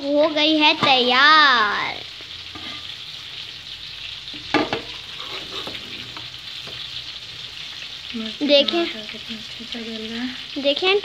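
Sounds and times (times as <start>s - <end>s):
spoon knocking on pot: 4.5s - 4.9s.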